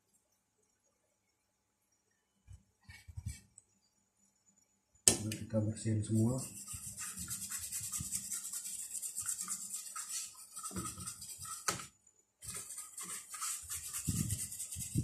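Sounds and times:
toothbrush scrubbing circuit board: 6.0s - 11.7s, 12.4s - 15.0s.

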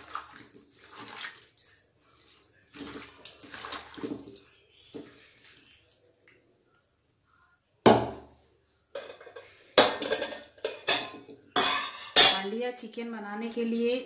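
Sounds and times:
hand mixing wet chicken in bowl: 0.0s - 6.5s.

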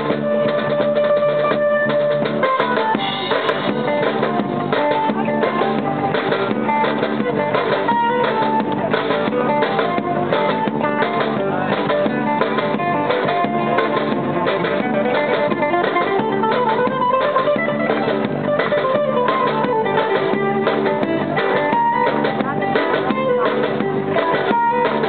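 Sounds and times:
guitar strumming and picking: 0.0s - 25.0s.

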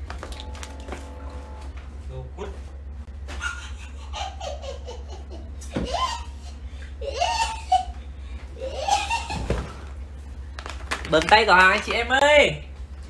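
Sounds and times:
low steady hum: 0.0s - 13.0s
people laughing: 3.3s - 9.8s.

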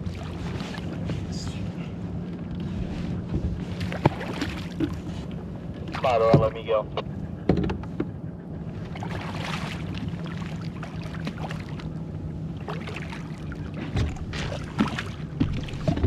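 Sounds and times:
steady low hum: 0.0s - 16.0s
water splashing: 3.6s - 5.1s, 8.8s - 16.0s.

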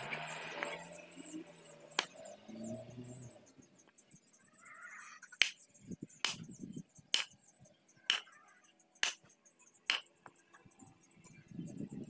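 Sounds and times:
high rapid chirping: 3.2s - 12.0s
sharp clicks: 5.2s - 6.5s, 7.1s - 7.4s, 8.1s - 10.6s.

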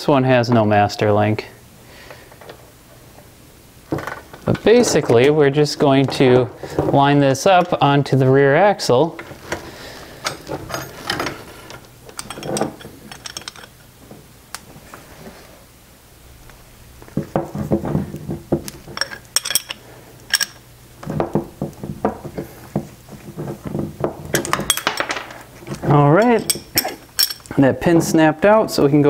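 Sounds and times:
metal chain rattling and clinking: 10.2s - 13.8s, 19.0s - 20.6s, 24.3s - 25.4s, 26.1s - 27.5s.

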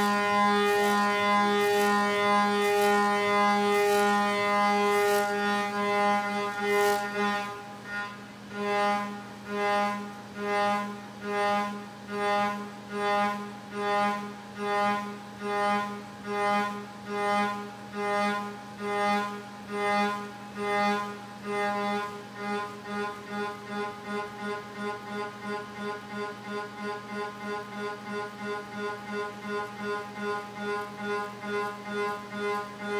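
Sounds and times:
milling spindle whine: 0.0s - 7.5s.

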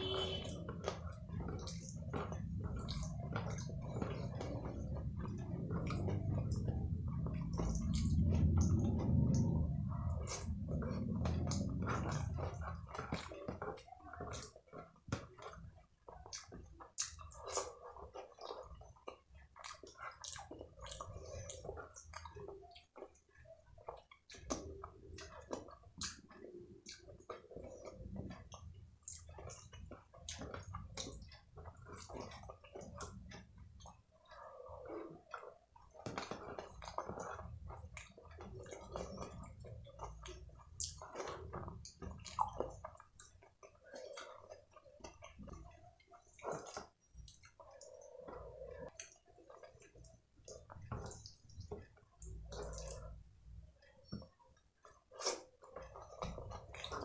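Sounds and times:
chewing: 0.0s - 57.0s
fingers squishing saucy food: 0.0s - 57.0s.

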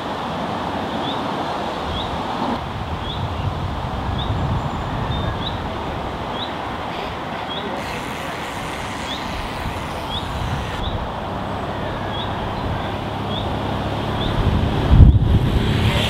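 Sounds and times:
road traffic rumble: 0.0s - 16.0s
bird chirping: 7.4s - 13.6s.

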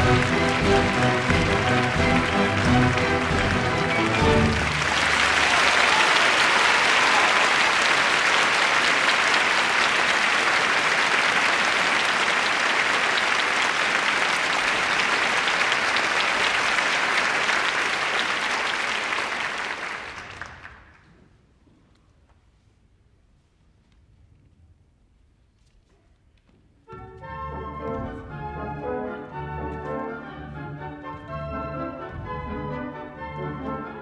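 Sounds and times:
audience applauding: 0.0s - 21.1s.

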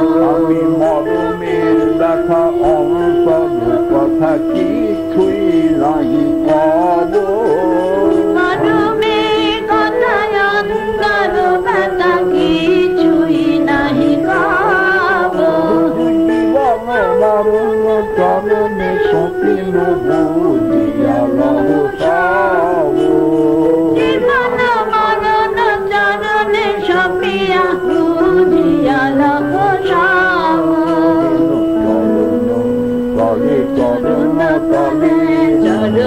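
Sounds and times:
devotional group singing: 0.0s - 36.0s.

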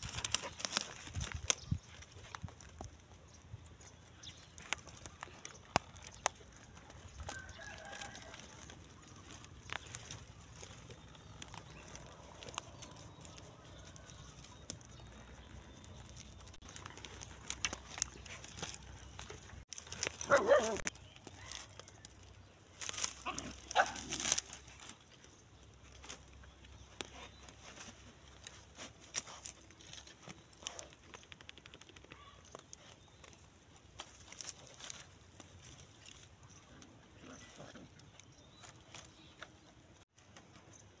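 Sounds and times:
scattered clicks: 30.9s - 32.2s.

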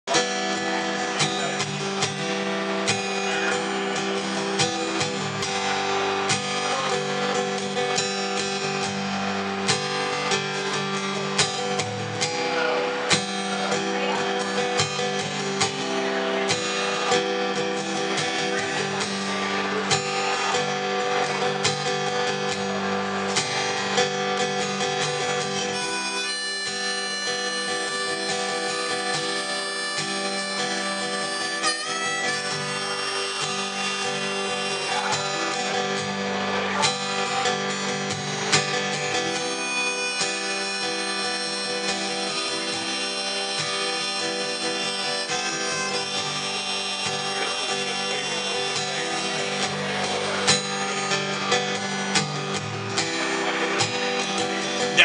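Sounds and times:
acoustic guitar strumming: 0.0s - 55.0s
harmonica playing: 0.1s - 55.0s.

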